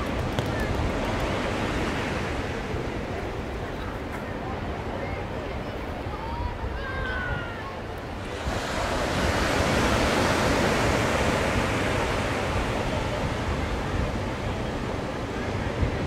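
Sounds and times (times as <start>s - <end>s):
wave breaking on beach: 7.2s - 16.0s.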